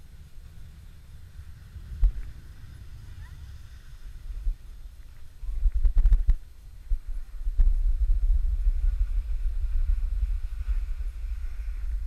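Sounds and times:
wind buffeting microphone: 0:00.0 - 0:12.0
skis sliding on snow: 0:06.9 - 0:12.0.

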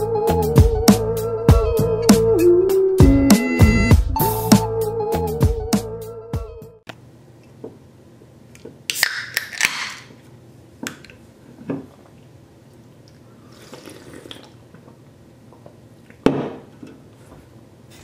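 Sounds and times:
carbonation hissing: 0:13.4 - 0:14.6.

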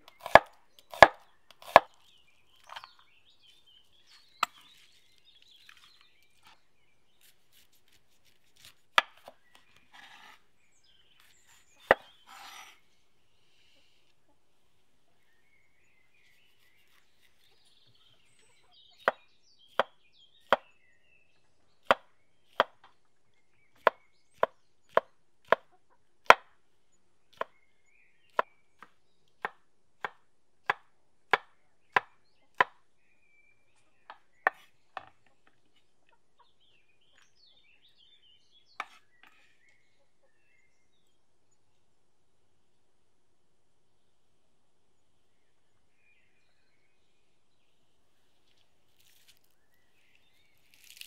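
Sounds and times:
knife chopping on wooden board: 0:00.1 - 0:01.9, 0:11.2 - 0:12.8, 0:19.0 - 0:20.7, 0:23.8 - 0:26.5, 0:28.3 - 0:32.8, 0:34.1 - 0:35.2, 0:38.8 - 0:39.4.

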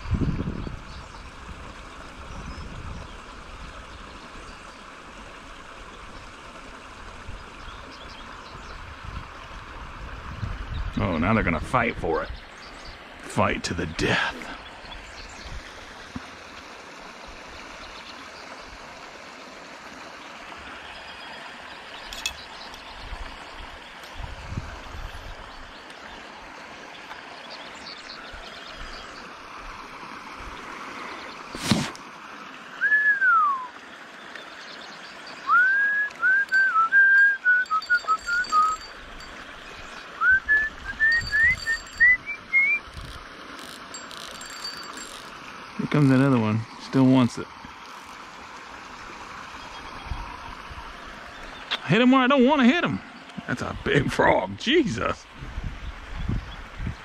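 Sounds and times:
person whistling a tune: 0:32.8 - 0:33.7, 0:35.5 - 0:38.8, 0:40.2 - 0:42.8
water pouring from pipe: 0:36.2 - 0:47.0.

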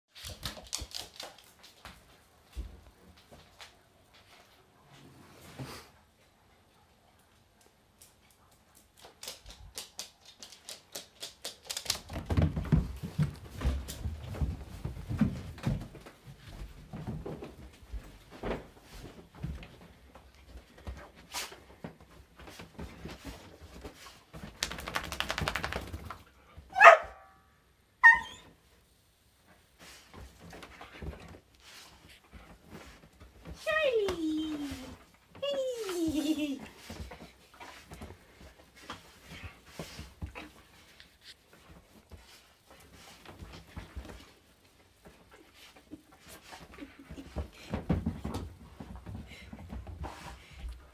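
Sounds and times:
dog's feet thumping on mattress: 0:12.1 - 0:26.2
dog scrabbling at a duvet: 0:23.6 - 0:26.2
high-pitched dog cries: 0:26.7 - 0:27.3, 0:28.0 - 0:28.6.

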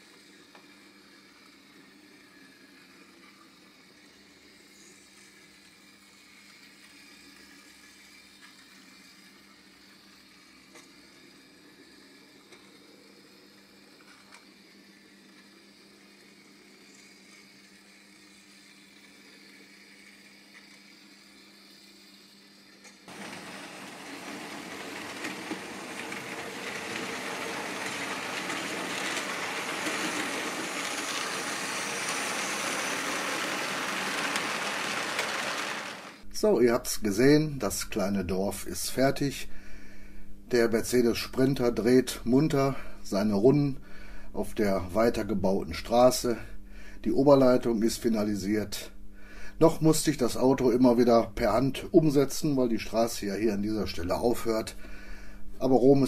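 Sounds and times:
model train rumbling on track: 0:23.1 - 0:36.2
faint steady hum: 0:36.2 - 0:56.0.

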